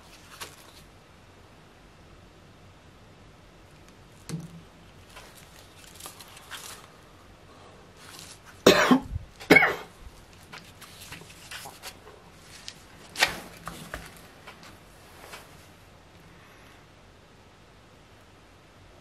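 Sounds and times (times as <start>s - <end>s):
faint rustling: 3.7s - 16.6s
person coughing: 8.6s - 9.9s.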